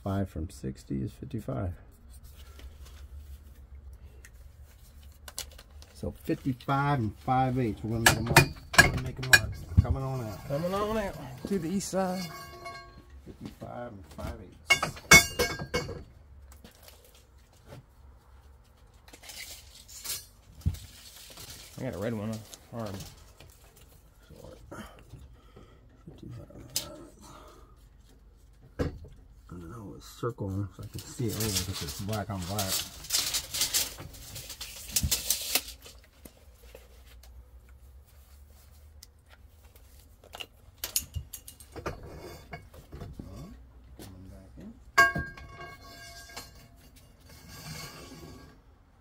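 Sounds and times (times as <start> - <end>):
steel pipe and tools clattering: 6.8 - 13.6, 14.5 - 16.2, 19.0 - 22.4, 30.9 - 36.9, 40.2 - 43.8, 44.9 - 48.7.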